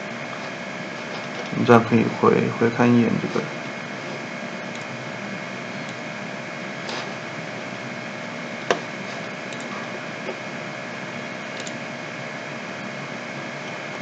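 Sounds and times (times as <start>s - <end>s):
background hiss and hum: 0.0s - 14.0s
computer mouse clicks: 9.5s - 9.7s, 11.5s - 11.8s.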